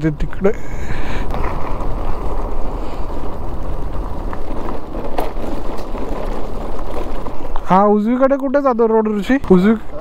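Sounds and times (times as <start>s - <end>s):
wind and road noise: 0.0s - 10.0s.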